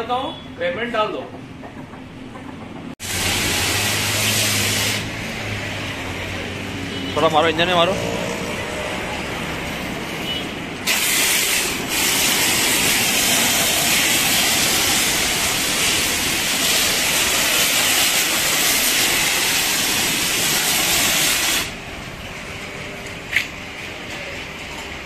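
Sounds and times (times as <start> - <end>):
foam lance spraying hiss: 3.0 - 5.2, 10.8 - 21.8.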